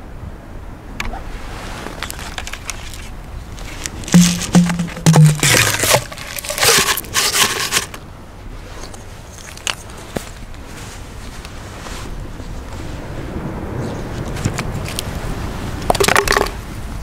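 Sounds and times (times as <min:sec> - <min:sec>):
paper crinkling and rustling: 0:01.8 - 0:08.0, 0:08.8 - 0:12.1
paper shell scraping in a tube: 0:02.0 - 0:08.0, 0:08.8 - 0:09.9.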